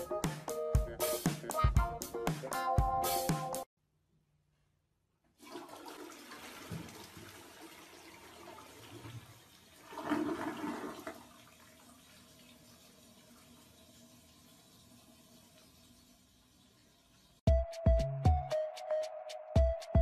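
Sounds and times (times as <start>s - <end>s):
toilet flushing: 5.4s - 17.4s.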